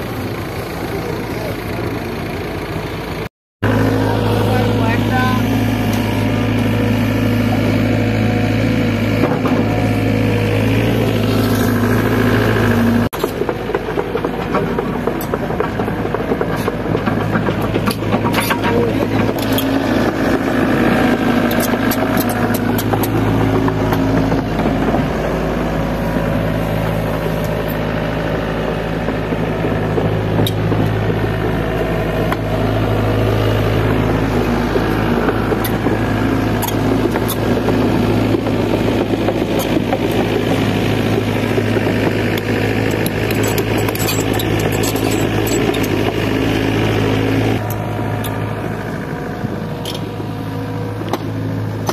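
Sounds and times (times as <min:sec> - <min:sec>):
excavator diesel engine running: 0:00.0 - 0:51.9
metal knocks and clanks: 0:13.2 - 0:20.2.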